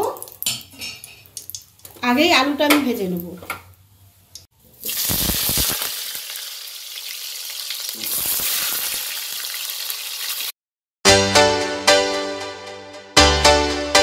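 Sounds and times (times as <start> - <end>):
potatoes sizzling in hot oil: 4.8 - 10.5.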